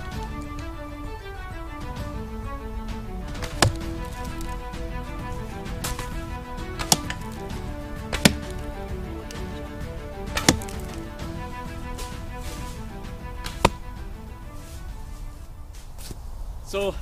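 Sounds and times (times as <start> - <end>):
background music: 0.0 - 16.6
arrows thwacking into ground: 3.3 - 4.7, 5.4 - 9.6, 10.3 - 11.1, 13.4 - 13.9.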